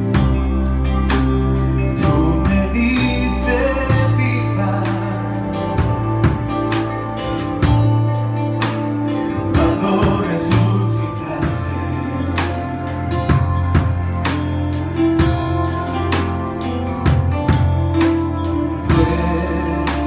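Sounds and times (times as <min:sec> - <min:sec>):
worship band playing: 0:00.0 - 0:20.0
person singing: 0:01.9 - 0:06.0, 0:09.4 - 0:13.1, 0:18.5 - 0:20.0.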